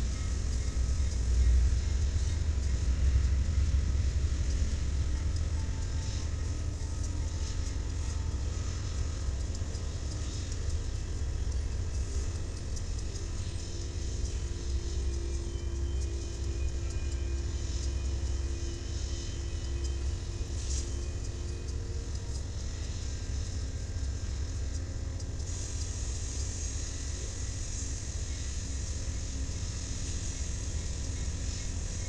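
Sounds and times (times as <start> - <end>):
steady hum: 0.0 - 32.0
hiss: 21.8 - 32.0.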